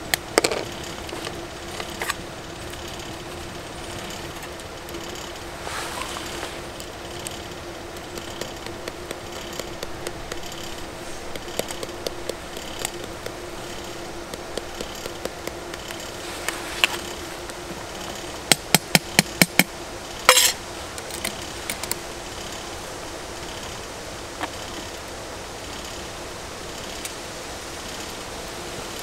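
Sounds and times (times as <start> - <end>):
ringing metal clank: 20.3 - 20.6.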